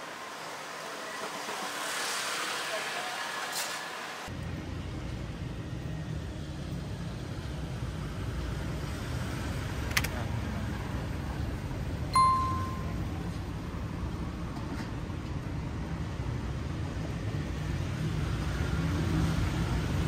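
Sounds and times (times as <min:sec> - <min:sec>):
street traffic rumble: 0:00.0 - 0:20.0
ringing metallic ding: 0:12.2 - 0:13.1.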